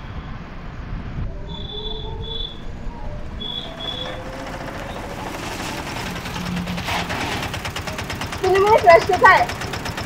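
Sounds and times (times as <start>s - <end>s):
electric rickshaw rumble: 0.0s - 10.0s.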